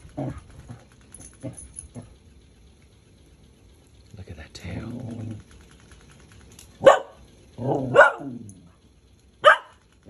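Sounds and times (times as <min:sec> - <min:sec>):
puppy low growl: 0:00.1 - 0:02.2, 0:04.9 - 0:05.5, 0:07.6 - 0:08.7
puppy barking: 0:06.8 - 0:08.4, 0:09.4 - 0:09.8.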